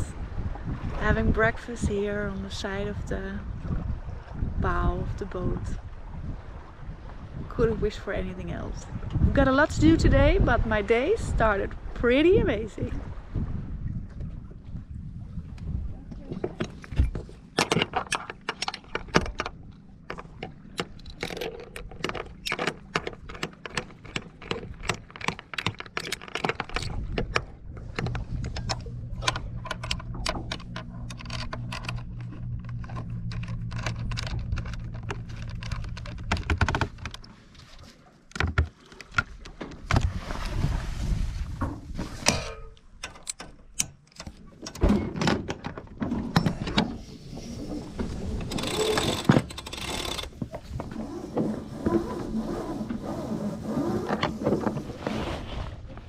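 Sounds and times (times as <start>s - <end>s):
low steady hum: 26.6s - 37.8s.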